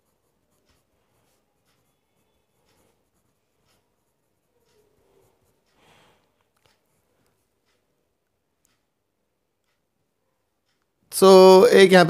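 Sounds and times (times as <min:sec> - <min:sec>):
pen scratching on paper: 0:00.0 - 0:07.8.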